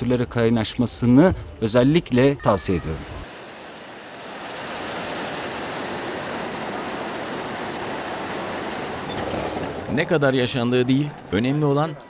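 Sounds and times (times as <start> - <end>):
river whitewater rushing: 3.0 - 10.3.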